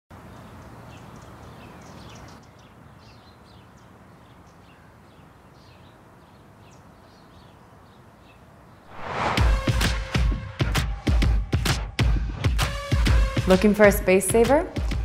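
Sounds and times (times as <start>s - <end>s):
small birds chirping: 0.1s - 8.9s.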